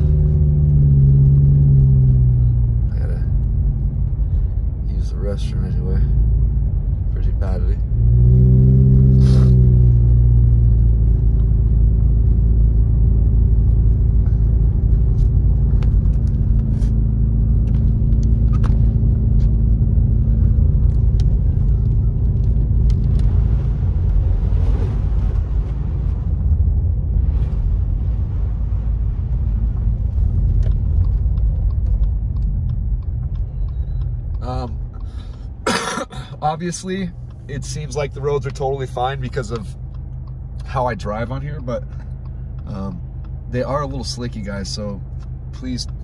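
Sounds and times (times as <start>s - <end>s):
car engine drone: 0.0s - 46.0s
tyres hissing on snowy road: 9.2s - 9.6s.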